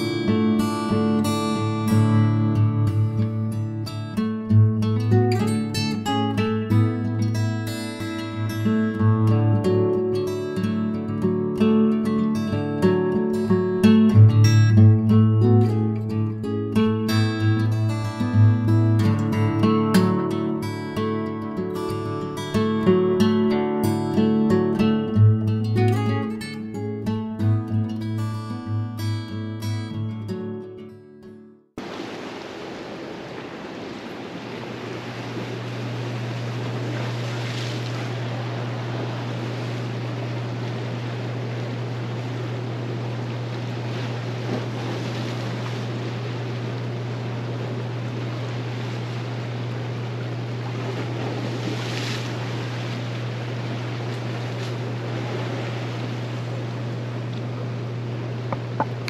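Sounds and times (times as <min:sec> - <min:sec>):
low hum: 0:00.0 - 0:05.4, 0:32.7 - 0:59.0
ocean waves washing in: 0:00.0 - 0:14.8, 0:31.8 - 0:59.0.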